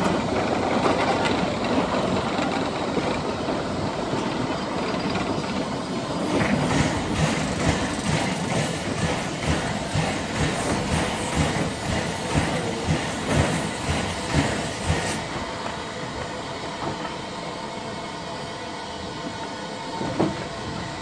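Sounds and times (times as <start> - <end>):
locomotive rolling rumble: 0.0 - 21.0
steam locomotive chuffing: 0.0 - 21.0
loud steam hiss: 3.6 - 18.8.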